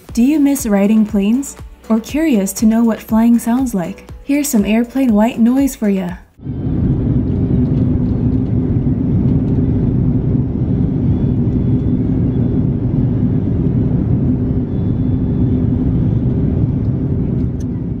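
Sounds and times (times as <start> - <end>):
jet engine cabin rumble: 6.4 - 18.0.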